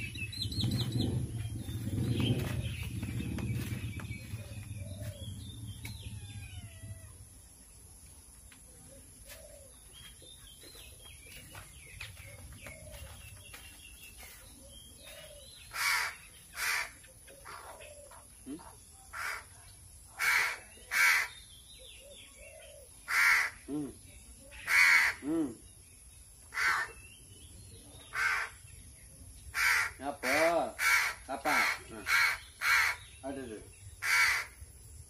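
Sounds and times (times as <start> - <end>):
low rumble: 0.0 - 7.4
crow cawing: 15.7 - 17.0, 23.1 - 23.6, 24.7 - 25.2, 26.5 - 27.0, 28.1 - 28.6, 29.6 - 33.0, 34.0 - 34.6.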